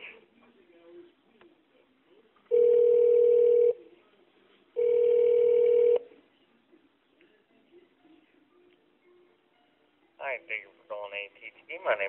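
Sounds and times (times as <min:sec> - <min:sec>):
telephone ringback tone: 0:02.5 - 0:03.8, 0:04.8 - 0:06.1.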